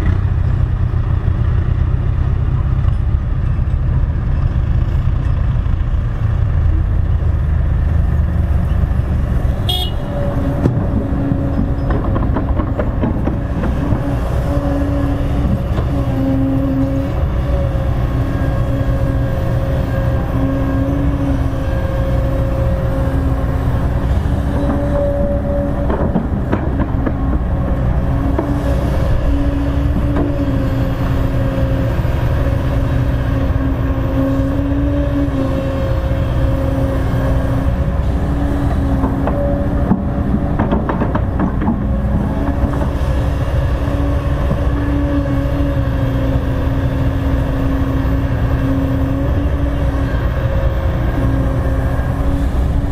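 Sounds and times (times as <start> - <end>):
excavator diesel engine rumbling: 0.0 - 52.9.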